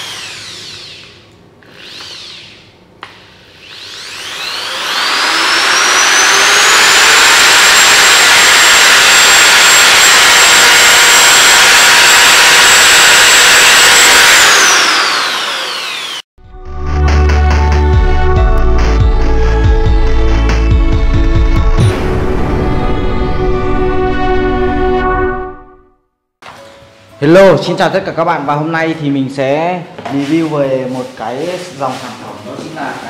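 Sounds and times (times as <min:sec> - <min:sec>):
drill click: 0:00.0 - 0:16.2
electric drill motor whine: 0:00.0 - 0:16.3.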